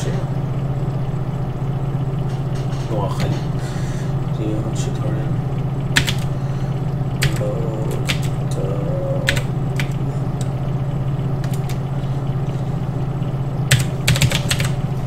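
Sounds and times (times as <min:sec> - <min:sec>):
steady low hum: 0:00.0 - 0:15.0
keyboard key clicks: 0:06.0 - 0:06.3.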